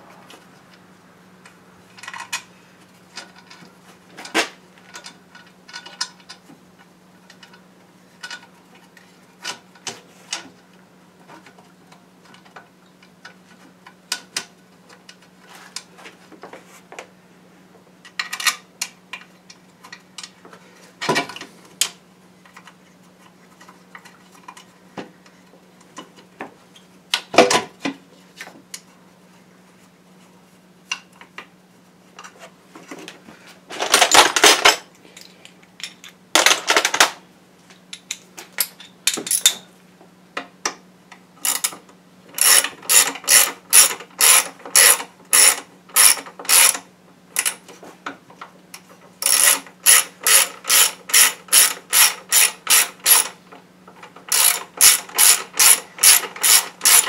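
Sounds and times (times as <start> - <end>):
ratchet wrench clicking: 42.4 - 46.8, 49.2 - 53.3, 54.3 - 57.0.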